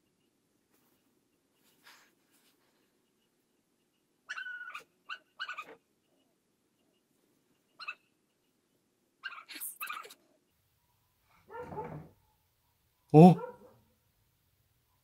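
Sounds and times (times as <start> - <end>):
dog barking and yelping: 4.2 - 5.8, 7.8 - 8.1, 9.2 - 10.2, 11.4 - 13.8.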